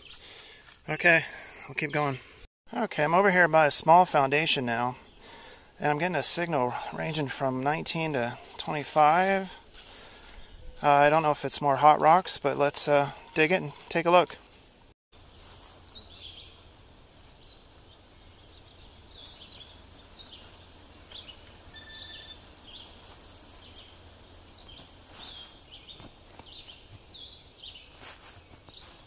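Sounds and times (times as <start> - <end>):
small birds chirping: 15.2 - 29.0.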